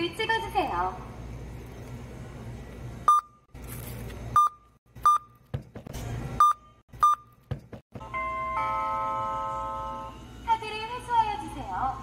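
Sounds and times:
barcode scanner beeping: 4.4 - 5.4, 6.4 - 7.4.

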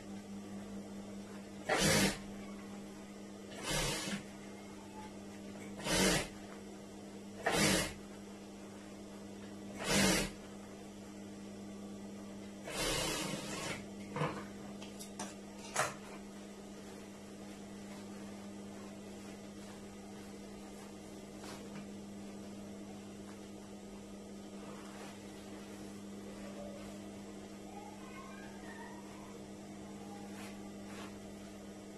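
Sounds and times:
sewing machine motor hum: 1.6 - 2.3, 3.5 - 4.4, 5.6 - 6.6, 7.4 - 8.2, 9.7 - 10.5, 12.6 - 14.0.

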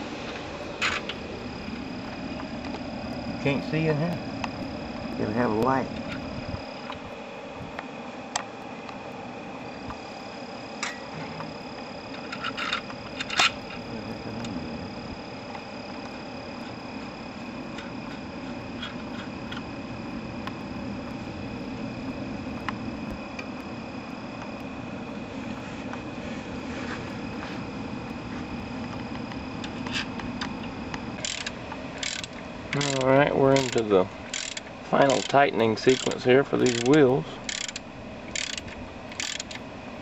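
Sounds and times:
insects trilling: 0.0 - 40.0.

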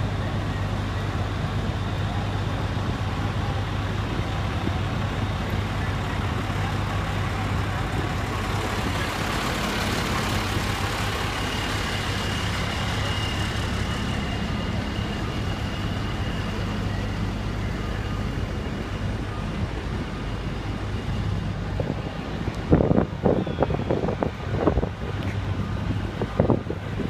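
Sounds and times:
diesel engines running: 0.0 - 27.0
faint high whine: 0.0 - 27.0.

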